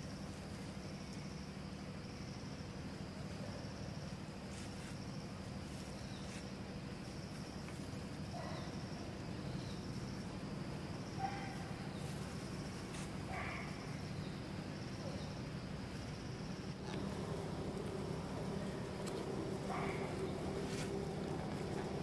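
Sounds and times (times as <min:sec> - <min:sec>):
high-pitched insect chorus: 0:00.0 - 0:22.0
low hum: 0:05.3 - 0:22.0.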